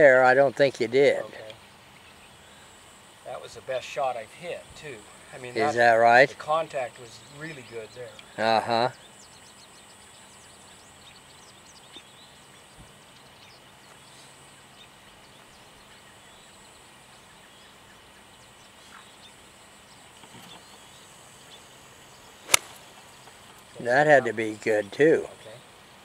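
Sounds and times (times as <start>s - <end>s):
faint bird chirps: 1.2s - 25.7s
golf club striking ball: 22.4s - 22.9s.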